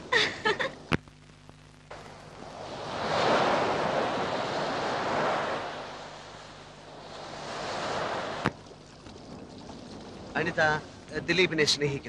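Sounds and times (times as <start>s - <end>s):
surf breaking against rocks: 2.4s - 11.8s.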